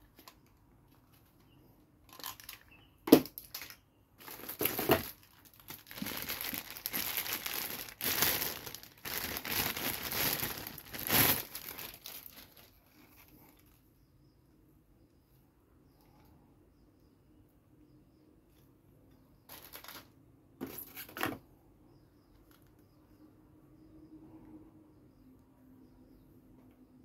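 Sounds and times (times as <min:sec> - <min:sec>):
plastic bag crinkling: 0:02.1 - 0:13.7, 0:19.5 - 0:20.1.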